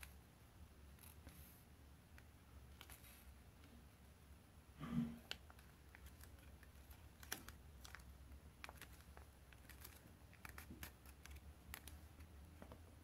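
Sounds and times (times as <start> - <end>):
low steady hum: 0.0 - 13.0
paper being folded and creased: 5.3 - 12.3.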